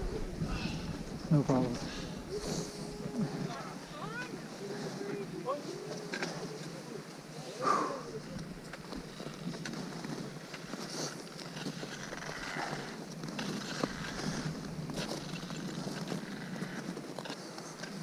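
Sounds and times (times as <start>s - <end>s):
wind noise on microphone: 0.0s - 4.0s
footsteps crunching on snow: 8.3s - 18.0s.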